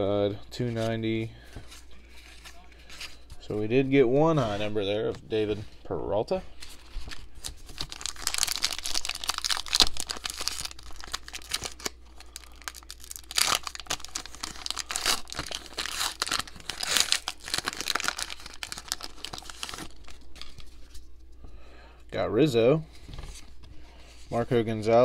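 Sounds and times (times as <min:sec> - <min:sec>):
plastic wrapper tearing and crinkling: 0:07.0 - 0:20.8.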